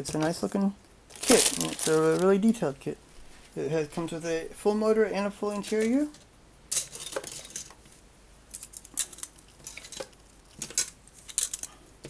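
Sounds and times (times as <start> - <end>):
plastic sprues clattering: 1.1 - 2.6, 5.5 - 7.8, 8.6 - 11.8.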